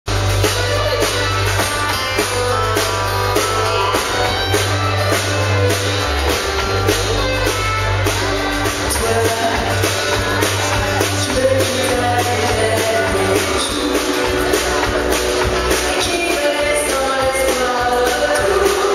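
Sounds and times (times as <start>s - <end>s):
country band playing: 0.1s - 18.9s
drum kit beat: 0.1s - 18.9s
woman singing: 8.8s - 10.3s, 11.0s - 15.1s, 15.7s - 18.9s.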